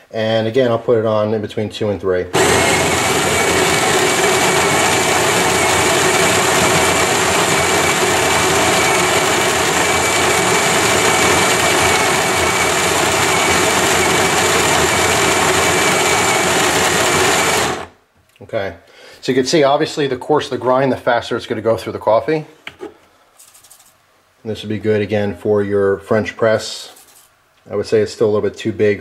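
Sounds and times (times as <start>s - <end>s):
coffee grinder grinding beans: 2.4s - 18.0s.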